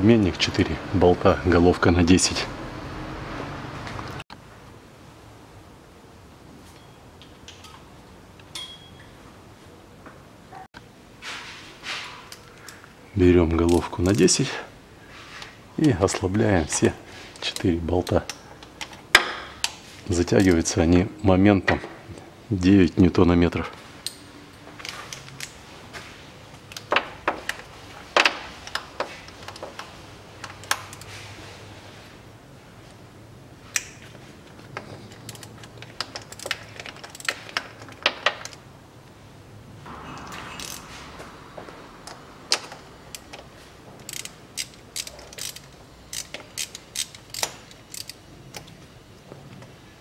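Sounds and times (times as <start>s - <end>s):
hand ratchet clicking: 35.1s - 37.7s, 44.0s - 48.7s.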